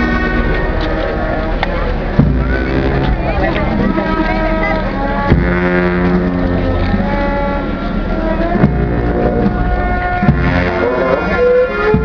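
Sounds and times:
crowd voices: 0:00.0 - 0:12.0
slow procession music: 0:00.0 - 0:12.0
heavy thumps: 0:02.1 - 0:04.6, 0:08.6 - 0:10.8.

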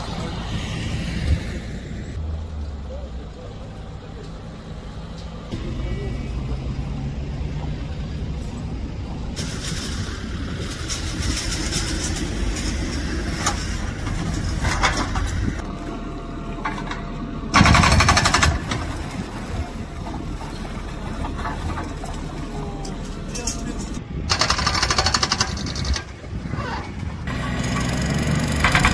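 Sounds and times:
diesel engine running: 0:00.0 - 0:28.9
machinery clattering: 0:09.4 - 0:15.8, 0:16.6 - 0:28.9
rapid rattling burst: 0:17.5 - 0:19.1, 0:24.3 - 0:26.3.

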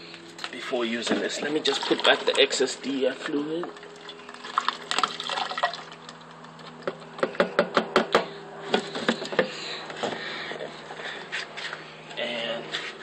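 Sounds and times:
liquid glugging from plastic bottle: 0:03.7 - 0:06.3.

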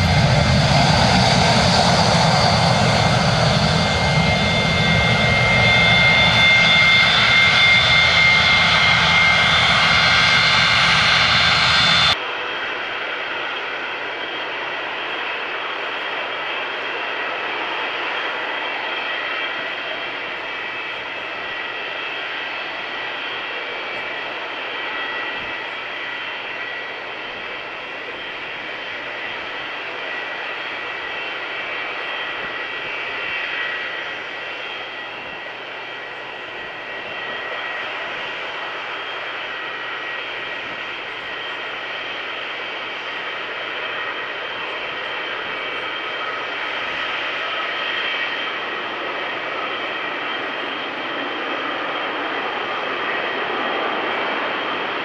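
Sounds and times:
high steady whine: 0:00.0 - 0:12.2
jet engines running: 0:00.0 - 0:55.0.

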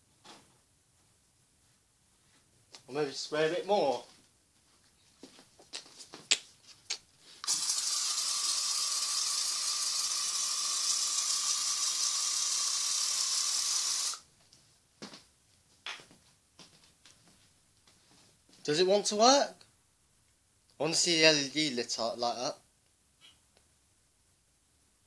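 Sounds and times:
aerosol spray hissing: 0:07.4 - 0:14.2.

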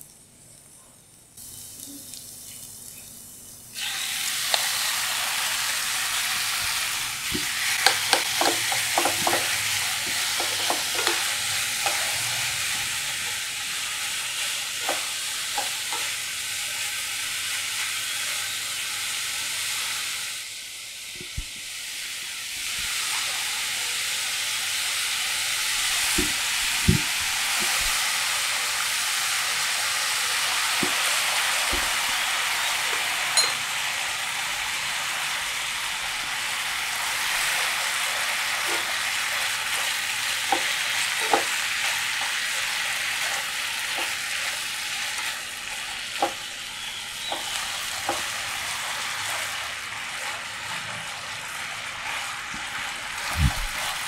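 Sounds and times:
pork sizzling in oil: 0:00.0 - 0:54.0
spatula stirring meat: 0:06.3 - 0:16.2
spatula knocking against pan: 0:07.8 - 0:11.2.

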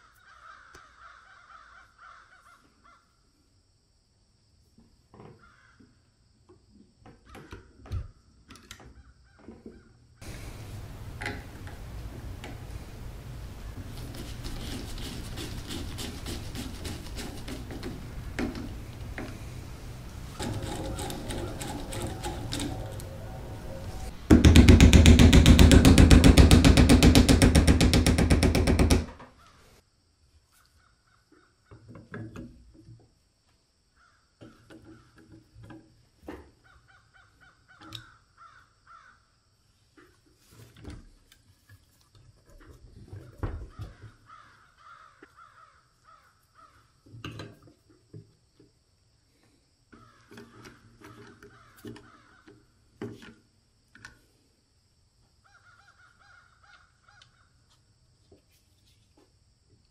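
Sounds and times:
loud rapid clatter: 0:19.9 - 0:23.1, 0:24.0 - 0:29.2.

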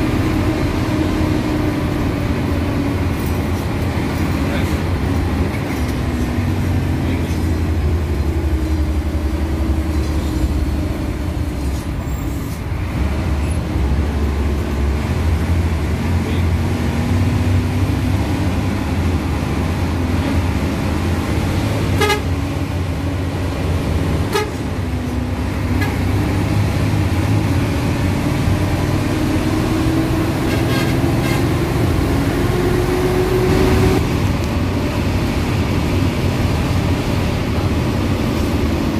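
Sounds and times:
bus engine rumbling: 0:00.0 - 0:38.9
bus horn toots: 0:21.9 - 0:22.6, 0:24.2 - 0:24.8, 0:25.7 - 0:26.0, 0:30.4 - 0:31.8.

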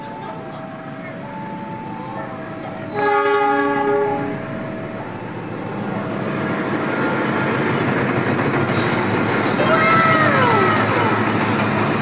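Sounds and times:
freight train rumbling: 0:00.0 - 0:12.0
train horn: 0:02.8 - 0:04.4.

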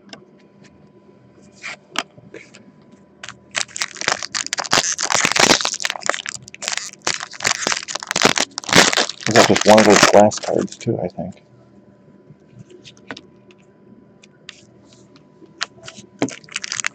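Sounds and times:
plastic wrappers crinkling: 0:03.2 - 0:10.9, 0:15.6 - 0:16.9.

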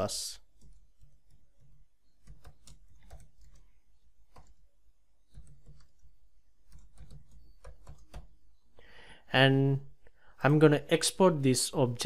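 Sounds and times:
keyboard typing: 0:00.4 - 0:08.4.

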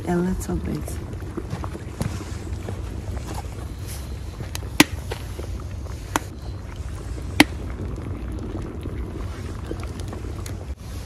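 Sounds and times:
fire low rumble: 0:00.0 - 0:11.0
wood fire crackling pops: 0:00.4 - 0:10.8.

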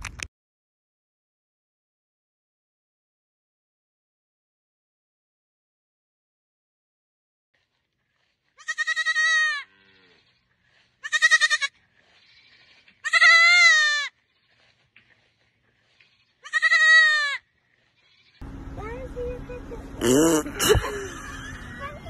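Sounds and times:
baby goat bleating: 0:08.6 - 0:09.7, 0:11.0 - 0:11.7, 0:13.0 - 0:14.2, 0:16.3 - 0:17.4.

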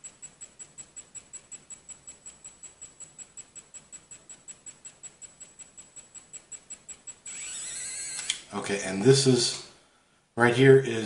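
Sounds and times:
pen motor whining: 0:00.0 - 0:08.5.

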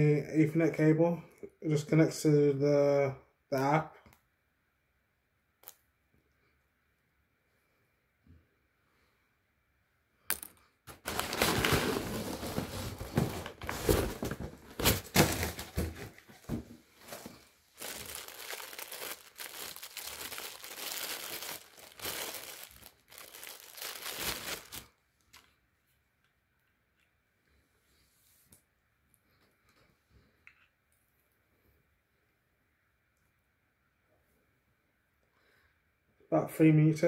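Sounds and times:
plastic packaging rustling: 0:10.9 - 0:25.5.

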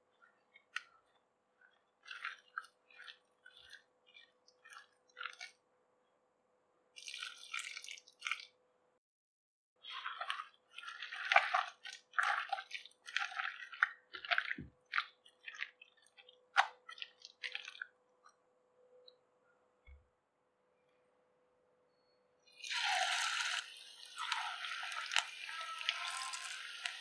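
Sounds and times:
hand squishing wet batter: 0:00.0 - 0:08.6, 0:09.8 - 0:20.0.

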